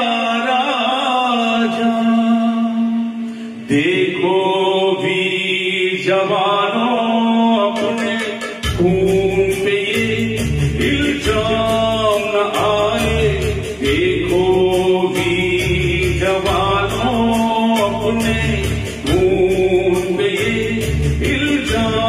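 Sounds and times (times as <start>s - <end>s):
man singing patriotic song: 3.7s - 22.0s
backing band drums and bass: 7.8s - 22.0s.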